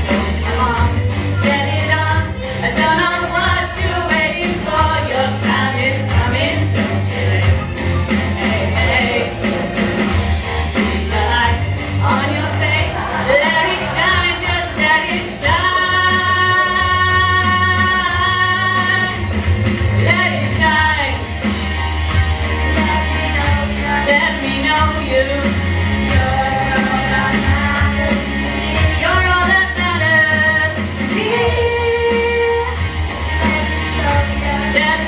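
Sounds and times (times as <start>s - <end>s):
backing music with bass line: 0.0s - 35.0s
woman singing: 0.3s - 7.6s, 11.0s - 19.3s, 20.0s - 21.2s, 22.7s - 35.0s.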